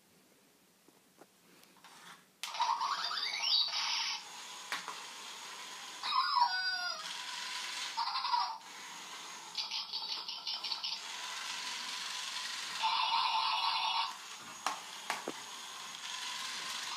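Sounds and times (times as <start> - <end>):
electronic puppy sounds: 2.4 - 4.2, 6.0 - 7.1, 8.0 - 8.7, 9.5 - 11.1, 12.8 - 14.2
toy motor hum: 2.4 - 16.9.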